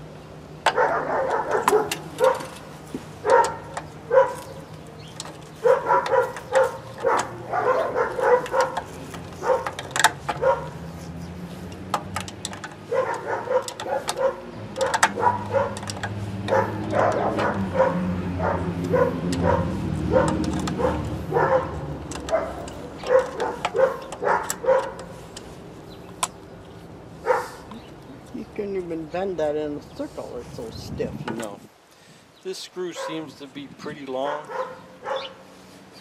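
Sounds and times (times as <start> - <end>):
dog barking: 0.7 - 2.5, 3.2 - 4.6, 5.6 - 9.8, 10.4 - 10.8, 12.9 - 15.9, 16.5 - 25.1, 27.2 - 27.6, 32.9 - 33.3, 34.2 - 35.5.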